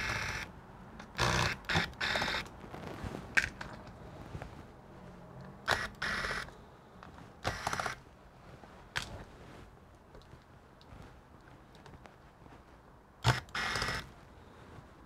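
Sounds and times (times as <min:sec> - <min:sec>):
sharp clicks: 0:05.4 - 0:06.6, 0:07.4 - 0:08.0, 0:13.2 - 0:14.1.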